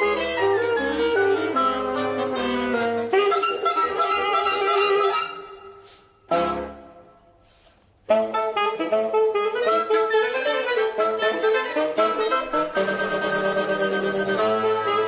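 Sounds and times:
instrumental background music: 8.1s - 15.0s.

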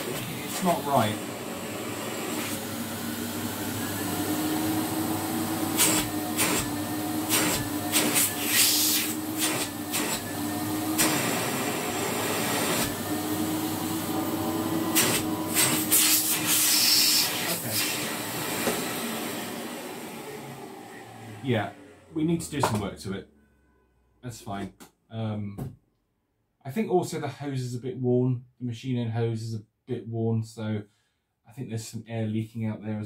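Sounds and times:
vacuum cleaner motor humming: 0.0s - 22.7s
air hissing: 7.3s - 10.2s, 15.0s - 18.1s.

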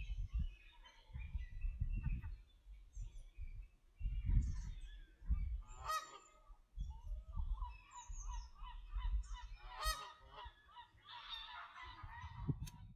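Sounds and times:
geese honking: 5.7s - 6.4s, 9.5s - 12.4s.

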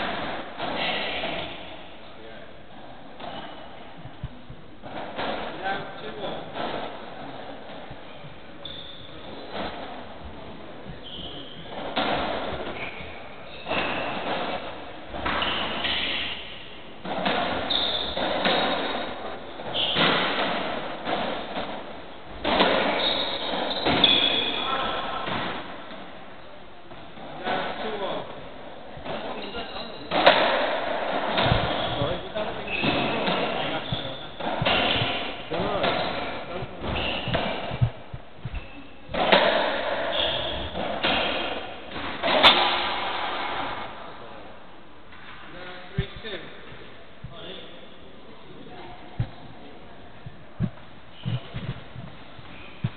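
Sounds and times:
ball struck by rackets: 11.4s - 26.0s, 30.1s - 32.1s, 32.7s - 44.0s
shoes squeaking on wooden floor: 17.5s - 20.3s, 22.4s - 25.1s, 31.4s - 39.0s, 40.0s - 41.6s, 50.6s - 52.9s.

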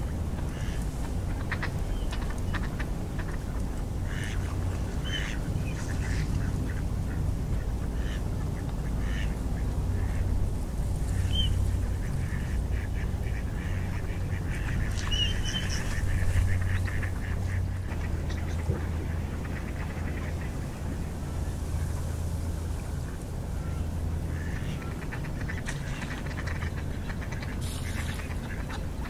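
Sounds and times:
ducks quacking: 0.0s - 29.0s
steady low rumble: 0.0s - 29.0s
whistled duck calls: 11.1s - 11.6s, 13.6s - 17.7s.

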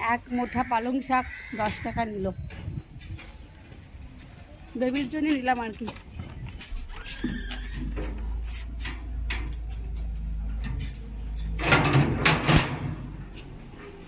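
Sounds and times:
knocks and clatter: 11.5s - 13.1s.

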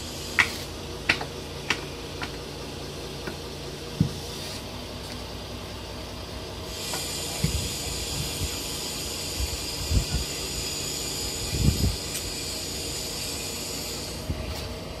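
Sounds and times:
hydraulic hiss: 0.0s - 0.8s, 6.7s - 14.7s
mini excavator running: 0.0s - 15.0s.

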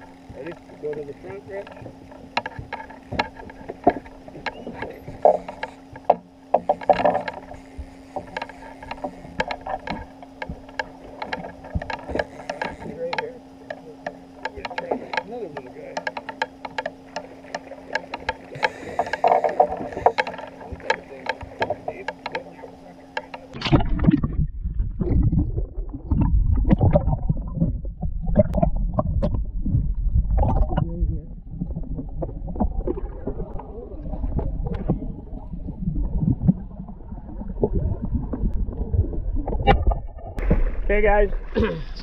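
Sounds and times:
fishing reel drag ticking: 0.0s - 23.6s
muffled water sloshing and gurgling: 0.0s - 42.0s.

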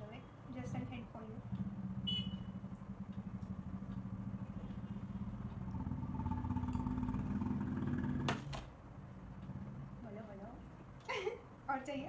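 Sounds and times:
engine-like hum: 0.0s - 11.0s.

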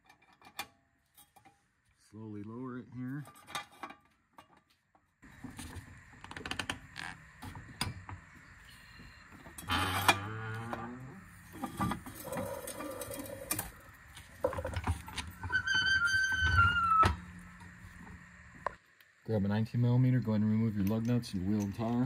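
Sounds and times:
tools clicking and clattering: 3.2s - 5.1s.

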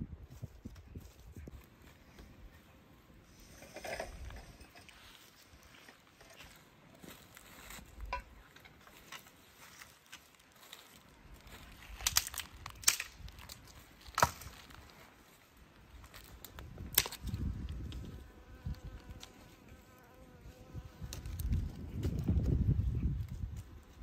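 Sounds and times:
twigs rustling and handling: 3.9s - 18.1s
dry branches snapping: 8.0s - 15.0s, 16.0s - 18.1s
faint insect-like buzz: 17.3s - 22.6s.

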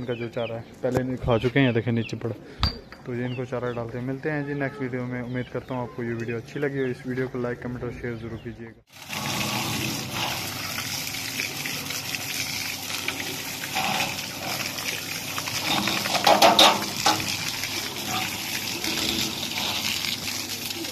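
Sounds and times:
water gushing from a hose: 8.9s - 20.9s
water splashing on ground: 8.9s - 20.9s.

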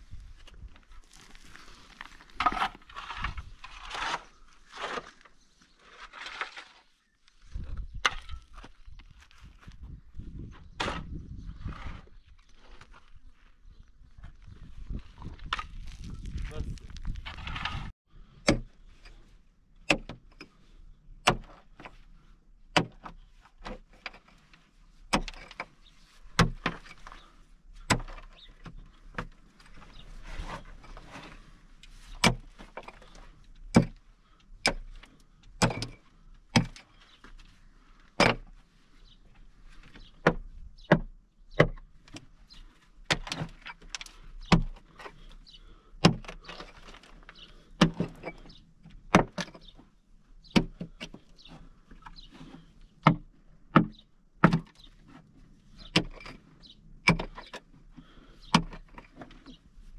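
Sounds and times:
soil and stones scraping: 0.0s - 19.4s, 23.1s - 40.9s, 41.9s - 53.4s, 54.5s - 59.9s
digging tool striking stony earth: 1.0s - 6.9s, 10.5s - 12.1s, 15.4s - 18.8s, 19.8s - 20.4s, 21.2s - 21.9s, 22.7s - 23.9s, 25.1s - 25.7s, 26.3s - 29.3s, 32.1s - 34.0s, 34.6s - 37.0s, 38.2s - 38.5s, 46.0s - 47.1s, 47.7s - 49.7s, 52.5s - 54.9s.

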